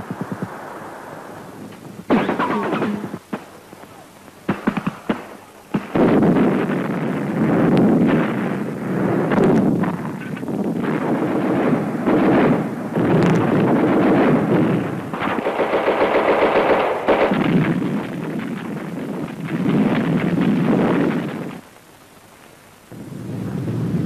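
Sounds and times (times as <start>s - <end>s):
muffled machine-gun fire: 2.1s - 3.6s, 4.5s - 10.0s, 10.8s - 21.6s.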